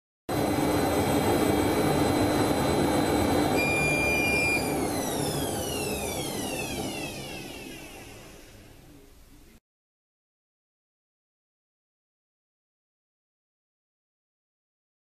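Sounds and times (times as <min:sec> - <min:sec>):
machine whining and winding down: 0:00.3 - 0:08.9.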